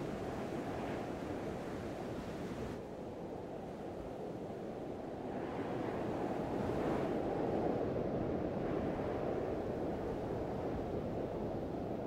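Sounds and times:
strong wind: 0.0s - 12.0s.

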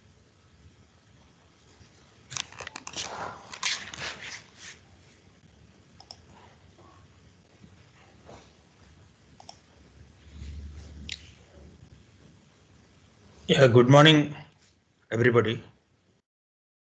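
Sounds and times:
faint steady hiss: 0.0s - 16.2s
crackling clicks and rustle: 1.6s - 4.5s.

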